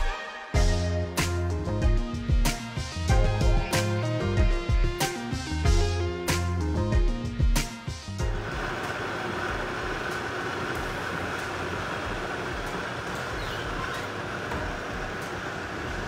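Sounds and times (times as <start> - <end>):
blender motor grinding: 8.2 - 16.0.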